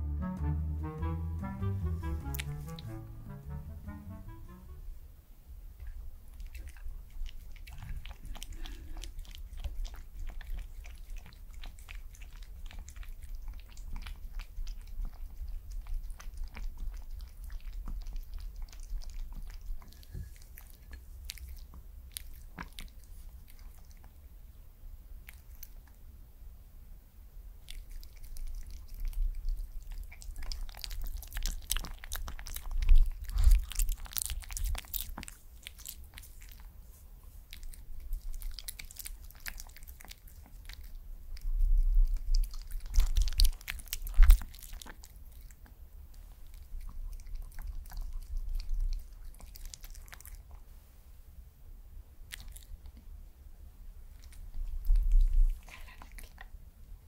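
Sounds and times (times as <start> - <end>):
dog chewing and licking: 6.3 - 24.2, 27.6 - 50.6, 52.3 - 53.0, 54.1 - 56.5.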